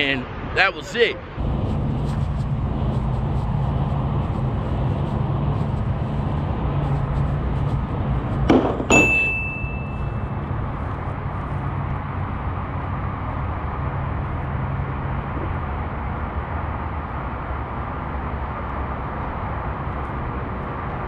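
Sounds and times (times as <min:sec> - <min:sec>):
steady low hum: 0:00.0 - 0:21.0
dull knock: 0:08.5 - 0:09.1
ringing metallic clink: 0:08.9 - 0:10.3.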